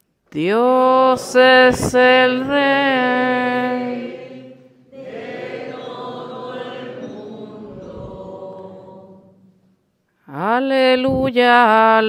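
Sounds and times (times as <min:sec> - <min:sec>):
congregation singing: 0:00.8 - 0:10.0.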